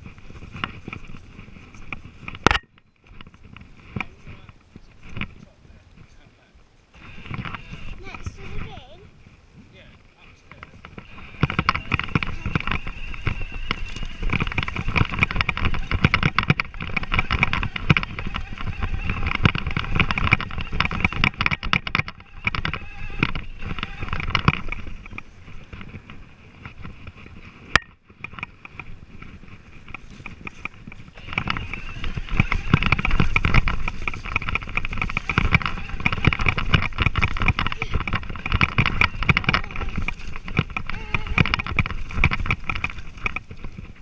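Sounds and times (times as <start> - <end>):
bike rattling: 0.0 - 44.0
wind on microphone: 0.0 - 44.0
electric motor whine: 7.0 - 9.1, 10.8 - 27.9, 28.6 - 44.0.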